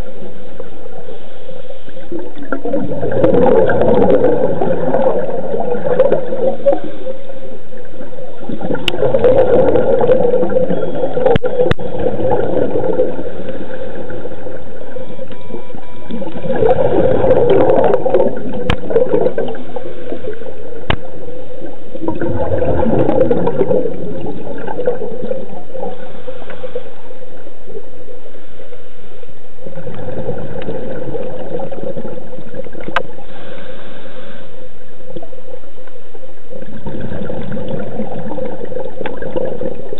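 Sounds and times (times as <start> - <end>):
gurgling exhaled bubbles: 1.9 - 27.9, 29.6 - 33.7, 36.5 - 39.9
diver inhaling through regulator: 25.9 - 27.2, 33.1 - 34.9.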